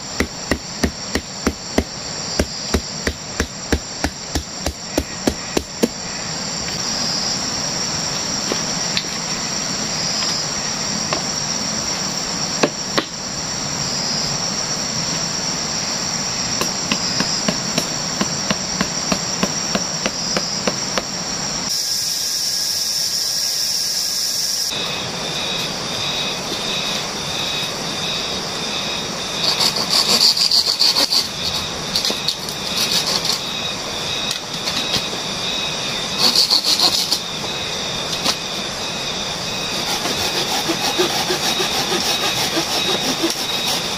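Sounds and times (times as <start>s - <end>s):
tropical insects chirring: 0.0s - 43.9s.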